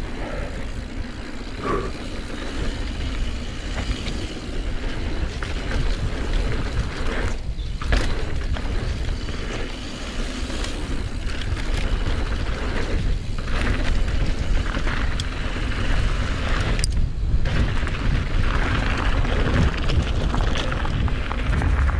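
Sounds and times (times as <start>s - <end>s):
bike chain and frame rattling: 0.0s - 21.9s
bike tyres rumbling on dirt: 0.0s - 21.9s
wind on microphone: 10.9s - 21.9s.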